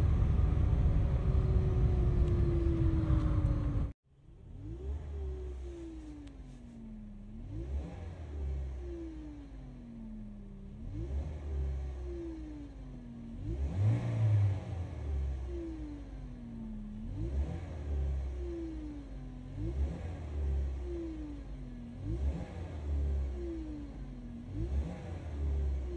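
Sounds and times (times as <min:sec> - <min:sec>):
whine rising with revs: 0:00.0 - 0:18.8
car engine revving: 0:00.0 - 0:25.9.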